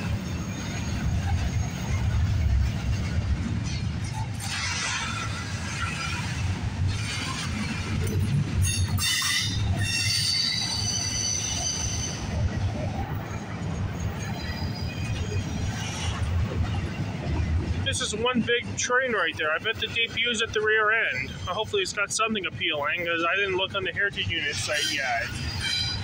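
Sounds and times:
train wheels rumbling on rails: 0.0s - 26.0s
high-pitched wheel squeal: 8.6s - 12.4s, 24.5s - 26.0s.

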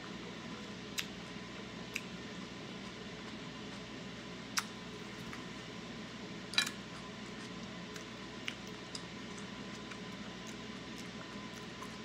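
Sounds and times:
chewing food: 6.8s - 12.0s.

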